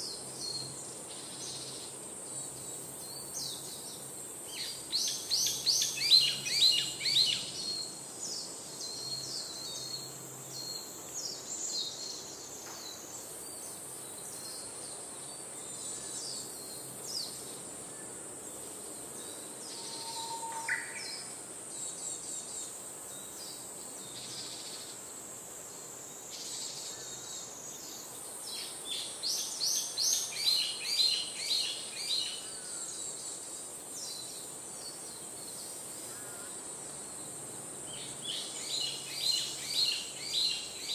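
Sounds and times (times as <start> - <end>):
steady high-pitched hiss: 0.0 - 40.9
birds chirping and twittering: 18.4 - 25.0.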